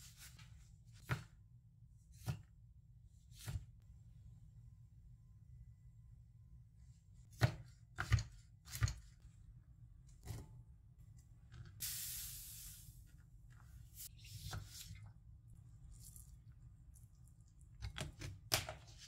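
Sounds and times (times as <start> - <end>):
short hiss: 11.8 - 12.9.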